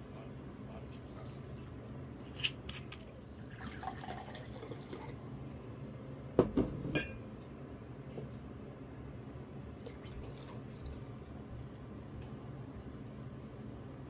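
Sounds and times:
liquid pouring into glass: 3.3 - 5.2, 9.8 - 11.2.

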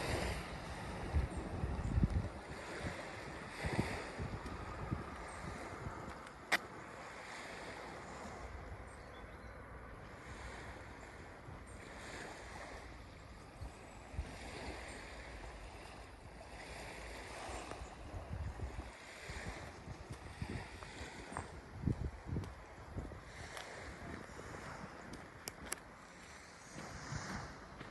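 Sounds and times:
wind rumble on microphone: 0.0 - 27.9
light ticks: 25.1 - 25.9.

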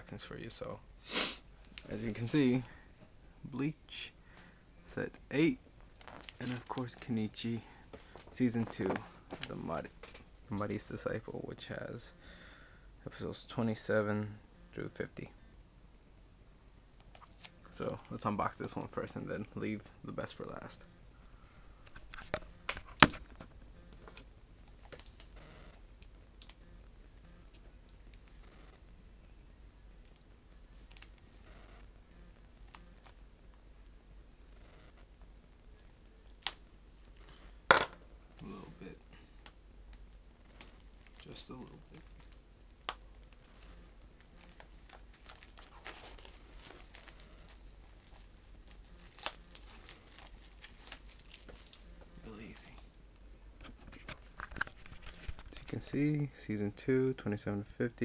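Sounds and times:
plastic wrapping crinkling: 5.9 - 7.1, 40.2 - 51.9, 53.6 - 55.8.

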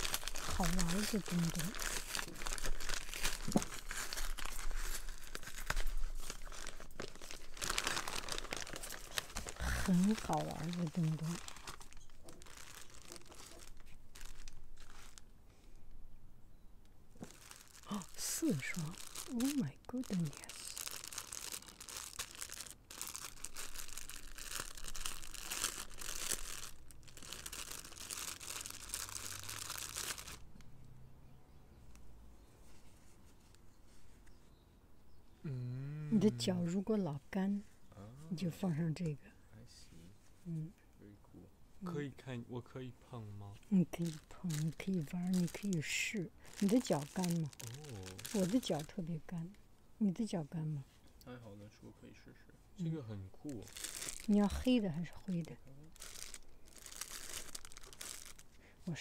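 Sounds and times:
paper mailer bag crinkling: 0.0 - 15.2, 17.2 - 30.5, 44.0 - 49.0, 53.6 - 54.8, 55.9 - 58.5
paper tearing: 46.6 - 48.8.

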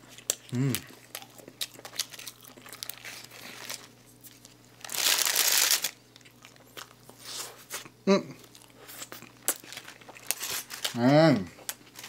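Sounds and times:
paper wrapper crinkling: 1.6 - 6.9, 9.4 - 11.0, 11.6 - 12.0.

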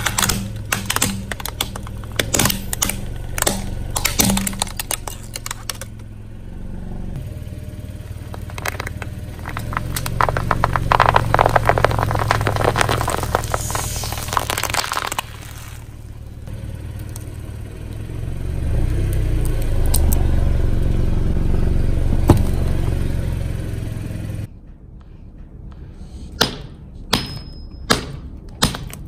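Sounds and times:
tire crushing crunchy items: 0.0 - 24.4
car engine running: 1.4 - 24.5.

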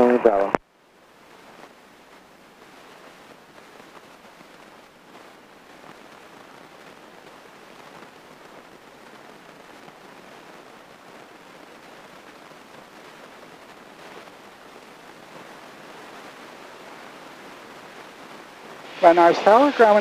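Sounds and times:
airplane cabin hiss: 18.8 - 20.0.

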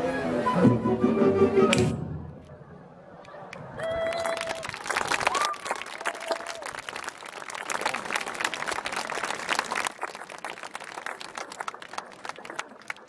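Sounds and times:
audience applauding: 3.2 - 13.0.

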